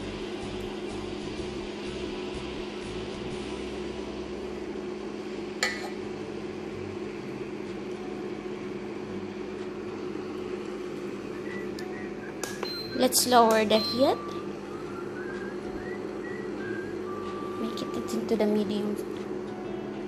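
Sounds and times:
electric cooktop humming: 0:00.0 - 0:20.0.

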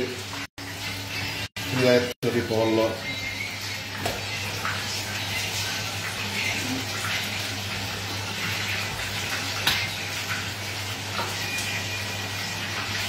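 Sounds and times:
chicken sizzling in hot oil: 0:00.0 - 0:13.0.

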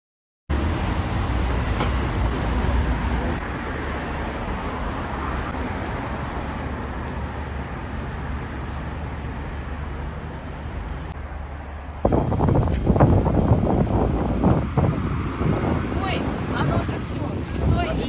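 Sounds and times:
city traffic passing cars: 0:00.5 - 0:18.0
wind buffeting microphone: 0:11.8 - 0:18.0.

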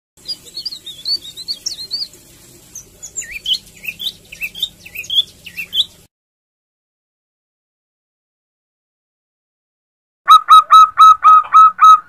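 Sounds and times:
songbird twittering: 0:00.2 - 0:06.0.

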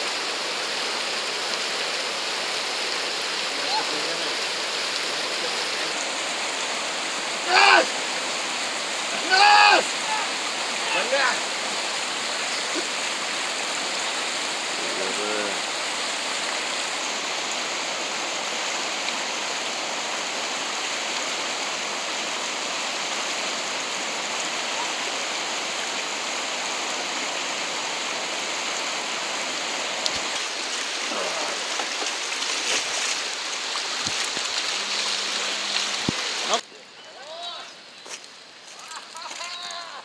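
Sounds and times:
river water rushing over weir: 0:00.0 - 0:36.7
person's voice: 0:07.4 - 0:07.9, 0:09.1 - 0:11.5, 0:14.8 - 0:15.6
person shouting: 0:07.4 - 0:08.0, 0:09.1 - 0:11.4, 0:38.9 - 0:40.0.

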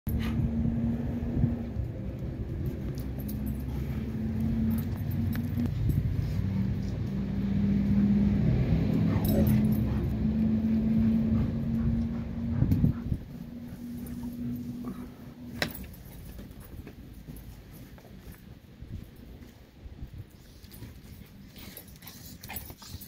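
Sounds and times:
dogs playing: 0:00.1 - 0:23.0
steady low hum: 0:00.1 - 0:23.0.

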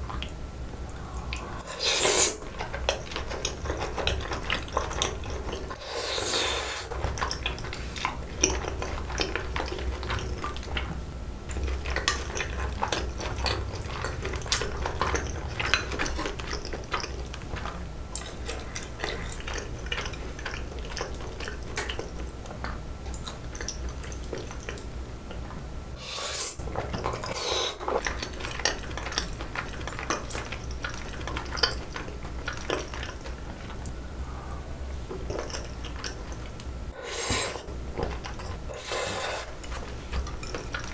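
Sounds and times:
chewing: 0:00.0 - 0:05.8, 0:06.8 - 0:25.6, 0:26.6 - 0:40.9
slurping noodles: 0:01.0 - 0:06.9, 0:26.0 - 0:28.1, 0:36.9 - 0:37.7, 0:38.5 - 0:39.6.

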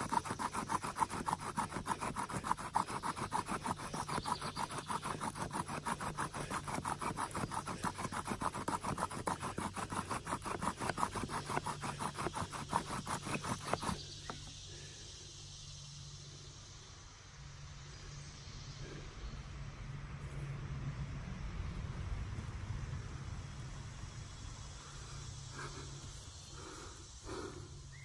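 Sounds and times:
bow drill spindle grinding: 0:00.0 - 0:14.5
faint insect buzz: 0:00.0 - 0:19.4, 0:24.2 - 0:28.0.

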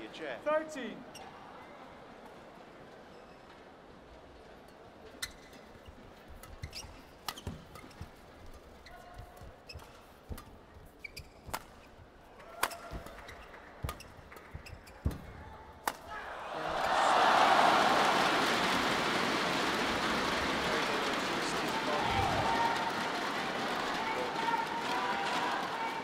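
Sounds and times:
court shoes squeaking: 0:01.0 - 0:01.8, 0:02.9 - 0:03.8, 0:04.7 - 0:16.2
racket hitting shuttlecock: 0:06.3 - 0:16.2
crowd cheering and applauding: 0:16.2 - 0:26.0.

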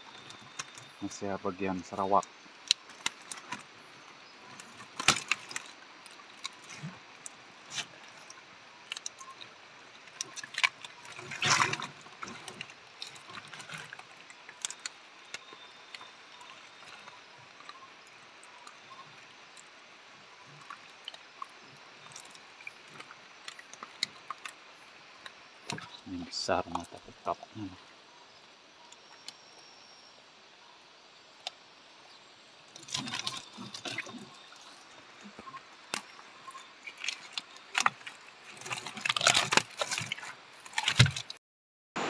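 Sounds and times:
water dripping: 0:00.0 - 0:29.6, 0:32.6 - 0:41.4
fish scuffling in a boat: 0:00.1 - 0:27.0, 0:32.7 - 0:41.4
wet net rustling: 0:02.5 - 0:26.0, 0:32.7 - 0:41.4.

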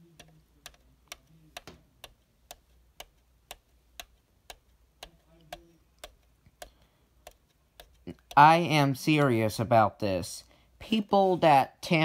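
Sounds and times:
faint regular ticking: 0:00.0 - 0:09.0.

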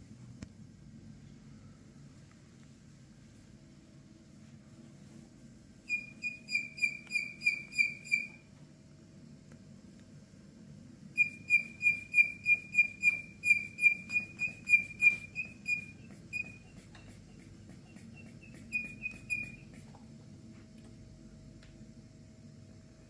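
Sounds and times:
squeeze bulb squeaking: 0:05.9 - 0:08.4, 0:11.2 - 0:16.8, 0:17.9 - 0:19.8.

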